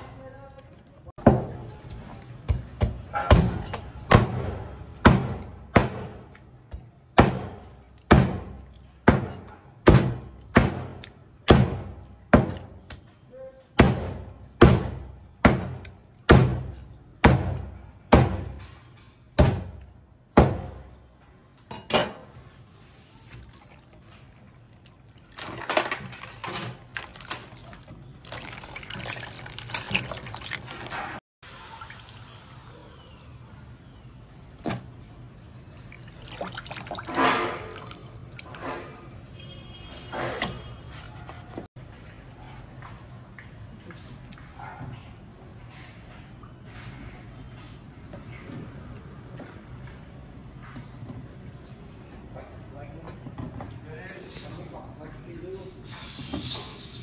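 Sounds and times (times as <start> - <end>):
tap water running: 23.4 - 32.7, 35.9 - 38.7.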